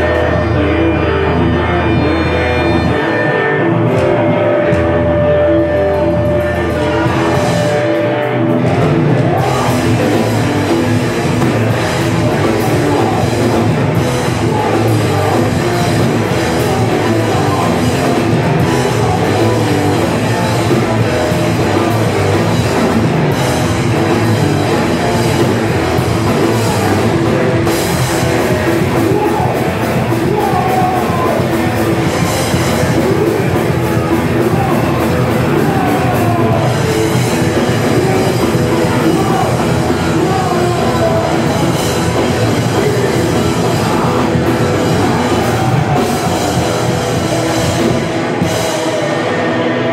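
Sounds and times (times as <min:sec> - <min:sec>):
drum kit: 0:00.0 - 0:49.9
electric guitars: 0:00.0 - 0:49.9
vocals: 0:00.0 - 0:49.9.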